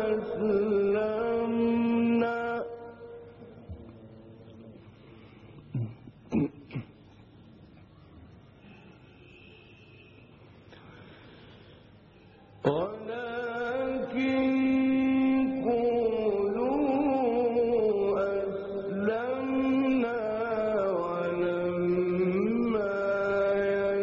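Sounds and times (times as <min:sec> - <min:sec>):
man reciting melodically: 0:00.0 - 0:07.0, 0:12.4 - 0:24.0.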